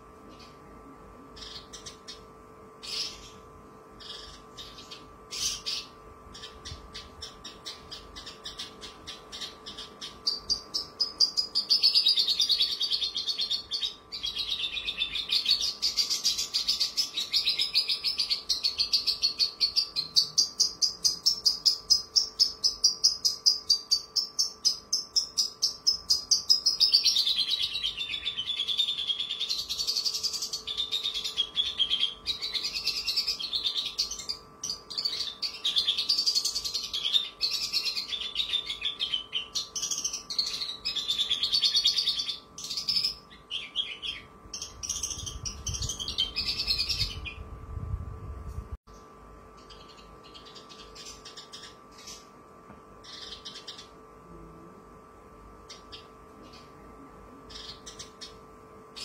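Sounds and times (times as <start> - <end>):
bird singing fast chirps: 4.0 - 47.5, 49.6 - 52.3, 53.0 - 54.0.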